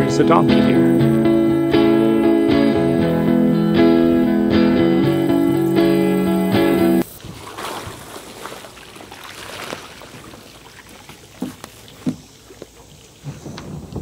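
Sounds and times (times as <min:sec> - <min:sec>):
boat hull scraping over grass: 0:07.2 - 0:14.0
hollow knocks on boat: 0:11.4 - 0:12.3.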